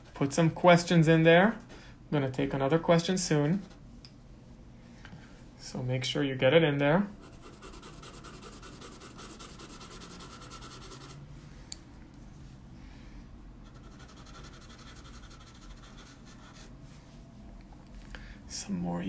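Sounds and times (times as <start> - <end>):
pencil scratching on paper: 7.2 - 11.2, 13.6 - 16.7.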